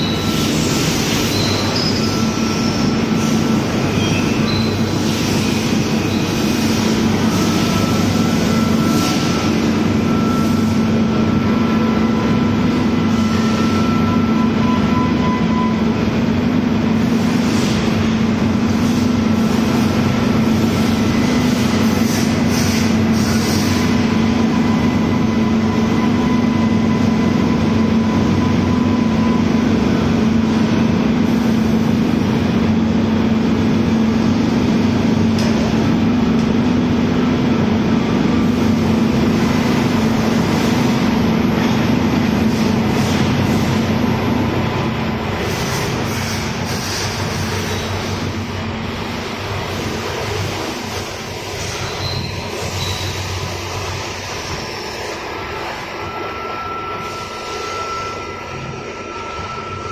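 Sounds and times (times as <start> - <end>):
loud machinery hum: 0.0 - 59.9
faint high whines: 51.9 - 59.9.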